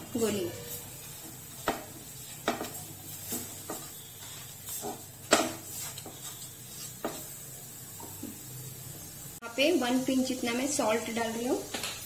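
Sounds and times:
spatula scraping a frying pan: 0.0 - 7.6.

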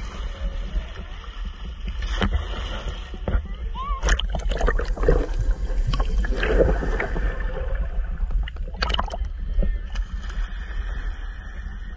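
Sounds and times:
sea water sloshing underwater: 0.0 - 11.9
splashes and knocks: 1.9 - 9.3.

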